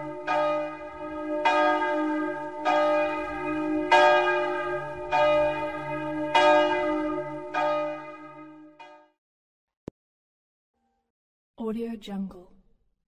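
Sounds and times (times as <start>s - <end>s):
church bell tolling: 0.0s - 9.2s.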